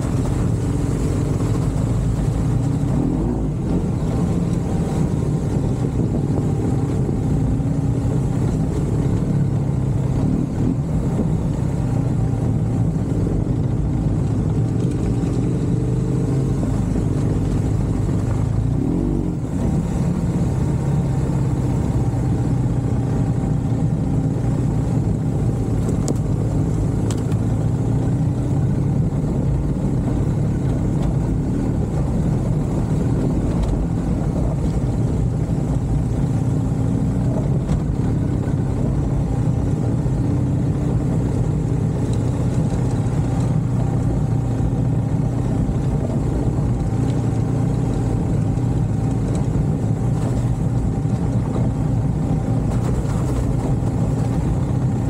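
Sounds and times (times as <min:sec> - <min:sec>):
vehicle engine running: 0:00.0 - 0:55.0.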